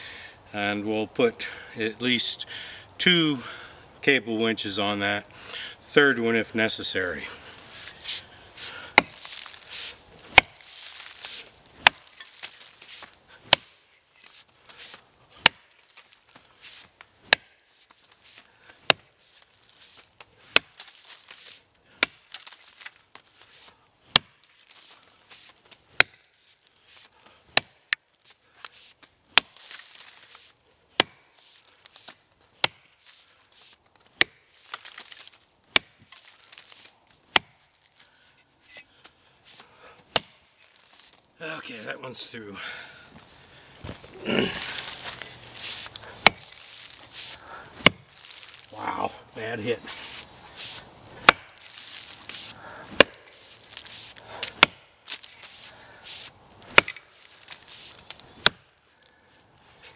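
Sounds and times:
axe chopping into roots: 8.0s - 13.9s, 14.8s - 16.4s, 17.3s - 17.6s, 18.3s - 19.2s, 19.8s - 26.3s, 27.0s - 28.0s, 28.6s - 31.3s, 31.9s - 33.0s, 34.2s - 37.6s, 39.6s - 40.8s, 44.6s - 48.7s, 49.9s - 58.8s.

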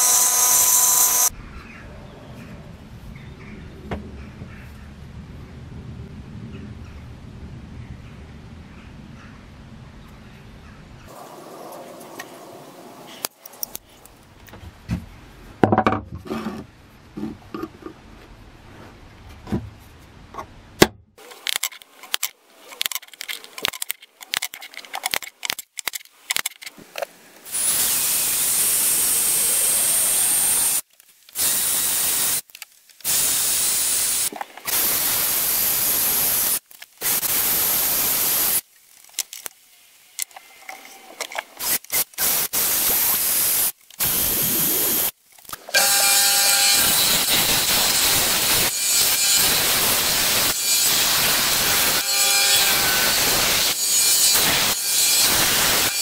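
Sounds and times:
cordless drill against blade: 0.0s - 1.3s
disc sander running: 45.8s - 56.0s.

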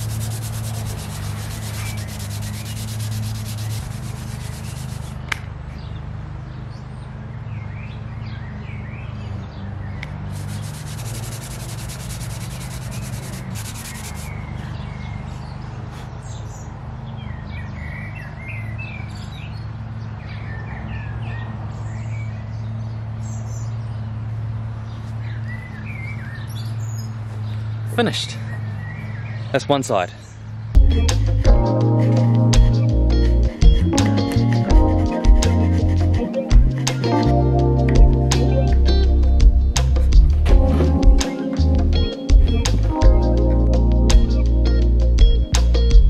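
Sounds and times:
steady low hum: 0.0s - 5.3s, 10.1s - 14.4s, 30.8s - 46.0s
hand sanding wood: 0.0s - 5.4s, 10.2s - 14.4s, 34.9s - 37.1s
birds chirping: 0.0s - 45.9s.

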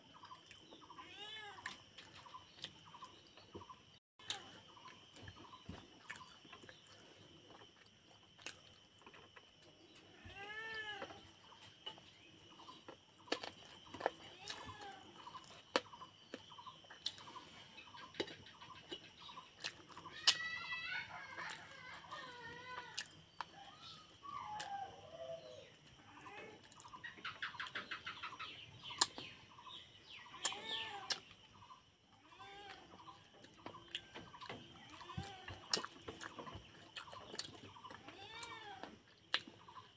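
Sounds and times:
chickens clucking: 26.1s - 31.9s.

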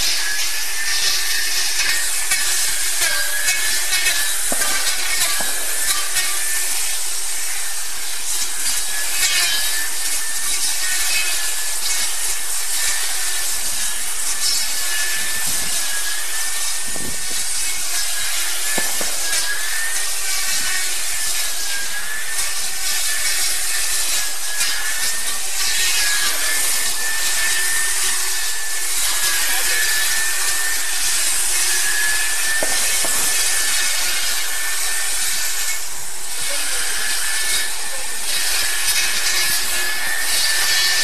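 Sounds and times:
brush cutter motor whine: 0.0s - 41.0s.

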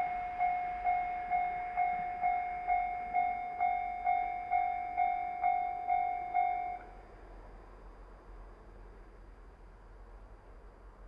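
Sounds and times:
level-crossing warning bell clanging: 0.0s - 7.0s.

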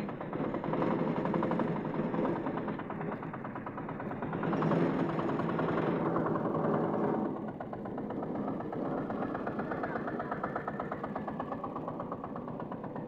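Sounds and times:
diesel engine clattering: 0.0s - 13.0s.

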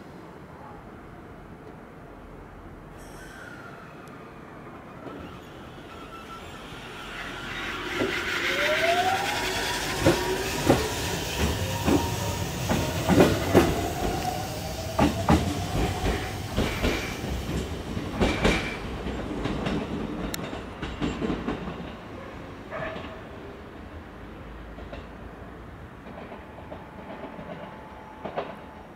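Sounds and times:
electric train motors whining: 5.0s - 17.4s.

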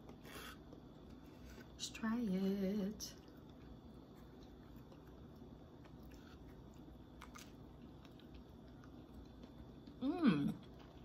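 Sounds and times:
person chewing: 3.2s - 11.0s.

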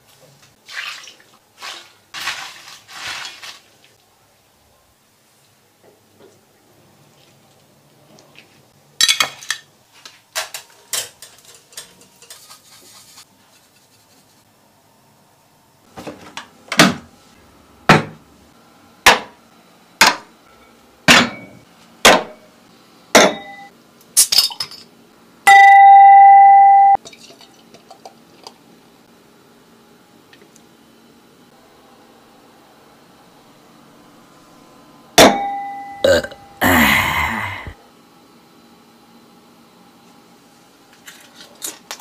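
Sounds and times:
long electronic beep: 25.5s - 27.0s.

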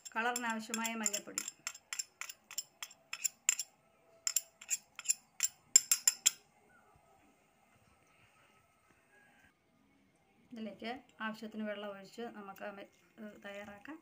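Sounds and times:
spoon clicking against jar: 0.0s - 3.6s, 4.3s - 6.4s.

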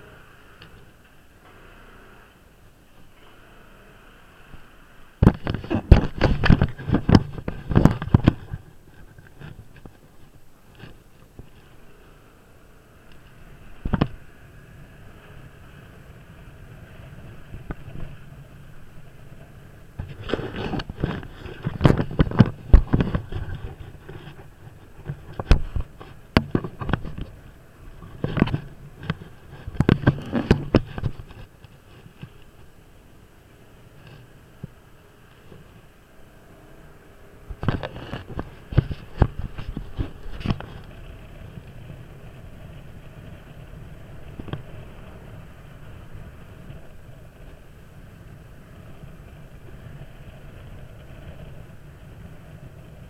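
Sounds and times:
scooter engine: 0.0s - 53.0s
wind rumble: 4.0s - 53.0s
camera mount knocking and rattling: 5.2s - 10.0s, 20.0s - 24.4s
camera knocking and rattling: 5.2s - 11.6s, 13.9s - 14.2s, 20.0s - 27.4s, 28.0s - 32.4s, 37.5s - 41.0s.

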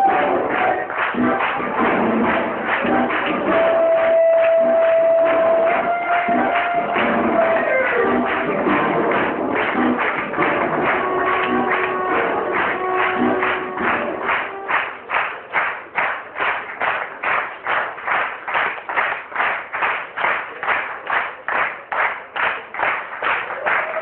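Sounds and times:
short melody: 0.0s - 15.3s.

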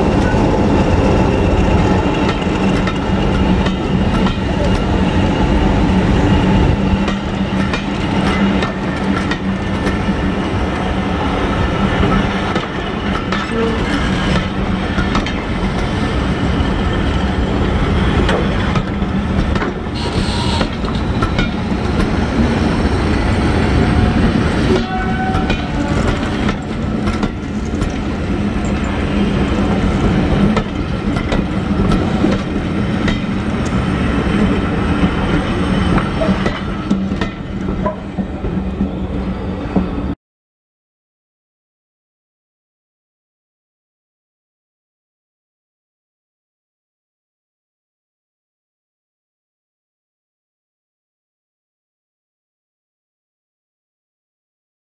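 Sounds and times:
train coaches rumbling past: 0.0s - 40.2s
wheels clattering over rail joints: 23.8s - 38.5s.

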